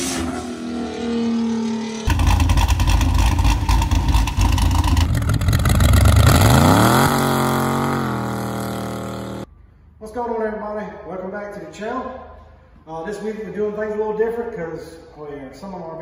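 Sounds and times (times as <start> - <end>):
car engine passing by: 0.0 - 2.5
pickup truck engine accelerating: 0.0 - 9.5.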